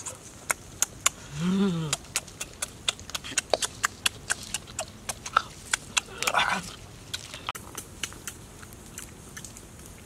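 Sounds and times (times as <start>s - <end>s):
chewing and lip-smacking: 0.0s - 10.0s
person humming mmm: 0.8s - 6.7s.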